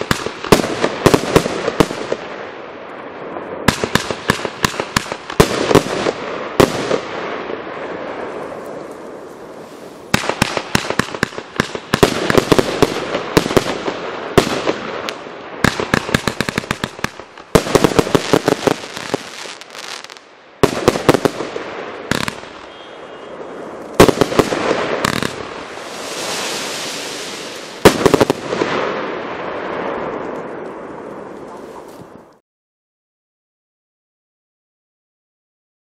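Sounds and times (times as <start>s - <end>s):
firework bangs and crackling: 0.0s - 32.2s
firework hissing: 24.2s - 28.6s.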